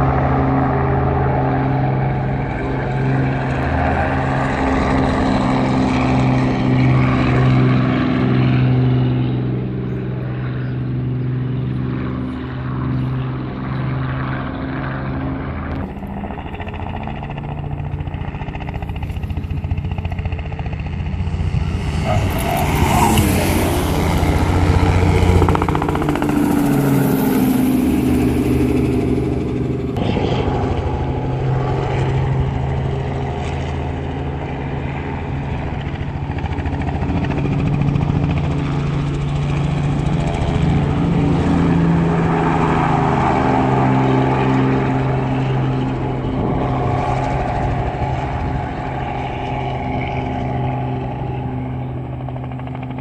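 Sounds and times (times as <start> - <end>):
helicopter engine passing: 0.0 - 53.0
sports car engine passing: 20.9 - 34.9, 39.7 - 52.7.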